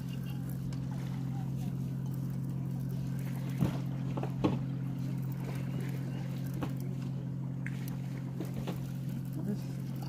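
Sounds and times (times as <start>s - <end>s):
engine humming: 0.0s - 10.0s.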